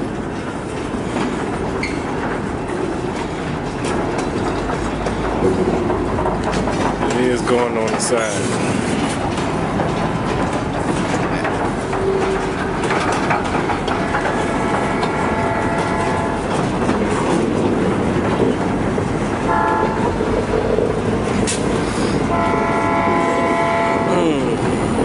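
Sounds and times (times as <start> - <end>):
train wheels rumbling and clattering: 0.0 - 25.0
train horn blasts: 13.9 - 16.6, 19.5 - 20.1, 22.2 - 24.6.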